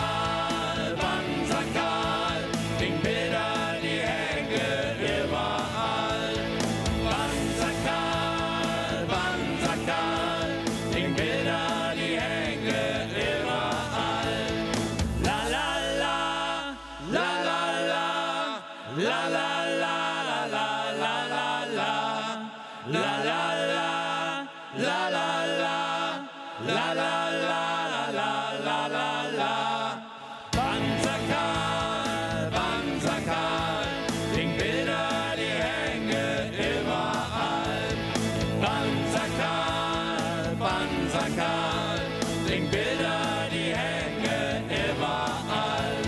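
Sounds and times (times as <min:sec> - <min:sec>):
band playing a song: 0:00.0 - 0:15.8, 0:30.6 - 0:46.0
drums: 0:00.0 - 0:17.2, 0:30.5 - 0:46.0.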